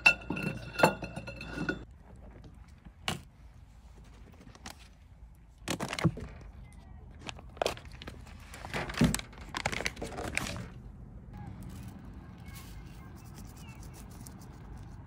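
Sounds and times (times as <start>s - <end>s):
metal tubes clinking: 0.0s - 1.9s.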